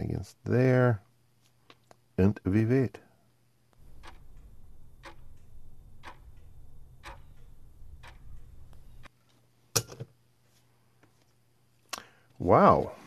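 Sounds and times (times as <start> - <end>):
low hum: 3.8 - 9.1
sharp ticks: 3.8 - 9.1.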